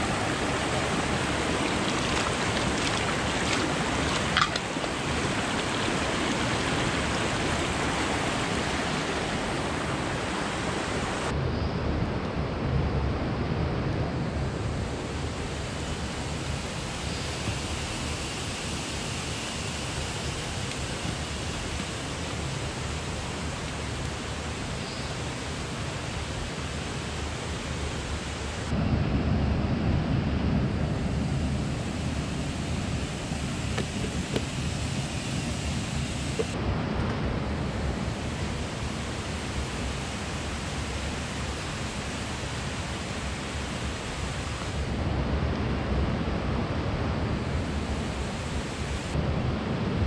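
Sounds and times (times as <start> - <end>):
river flowing over rocks: 0.0 - 11.3.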